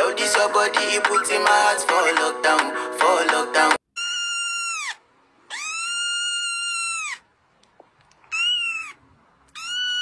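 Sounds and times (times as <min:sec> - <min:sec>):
kitten meowing: 0:04.0 - 0:07.2, 0:08.3 - 0:10.0.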